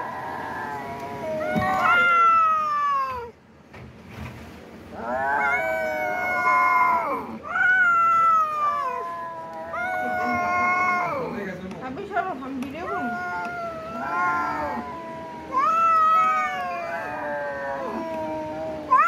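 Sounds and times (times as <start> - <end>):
cat yowling: 0.0 - 3.4, 5.0 - 11.4, 12.7 - 19.0.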